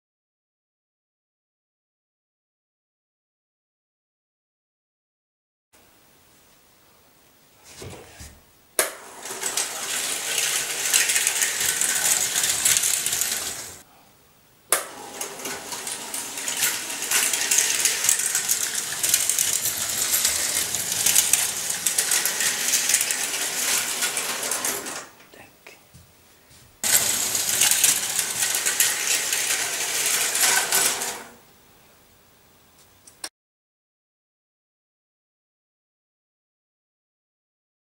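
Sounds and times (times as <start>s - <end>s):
model train clattering on track: 8.8s - 13.8s, 14.8s - 25.1s, 26.8s - 31.3s.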